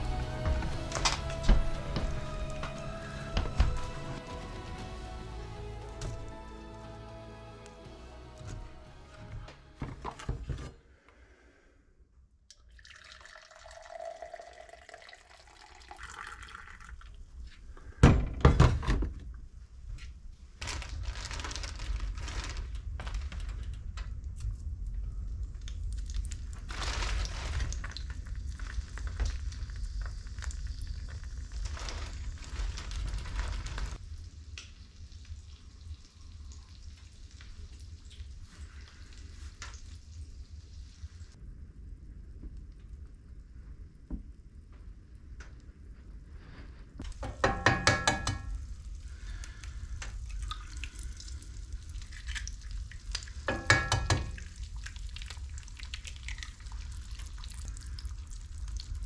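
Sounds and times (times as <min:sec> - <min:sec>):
coffee pouring into a mug: 0:12.6 - 0:17.2
food frying in a pan: 0:47.1 - 0:59.0.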